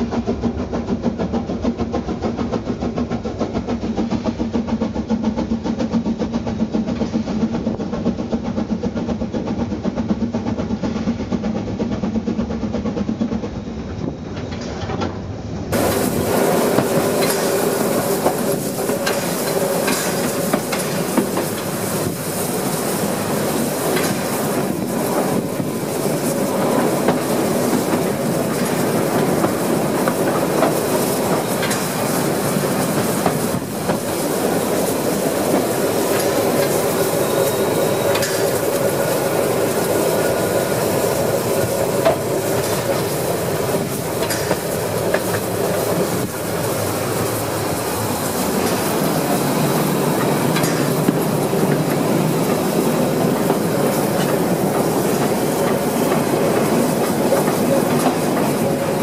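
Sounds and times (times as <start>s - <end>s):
train rumbling: 0.0s - 59.0s
wheels clicking over rail joints: 13.2s - 59.0s.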